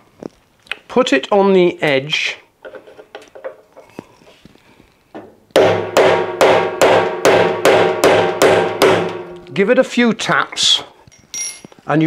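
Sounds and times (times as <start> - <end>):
hammer striking chisel: 5.6 - 9.3.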